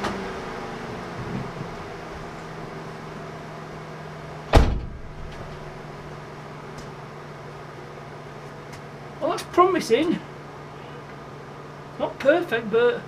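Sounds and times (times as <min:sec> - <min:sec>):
car engine idling: 0:00.0 - 0:12.8
car door shutting: 0:04.5 - 0:05.8.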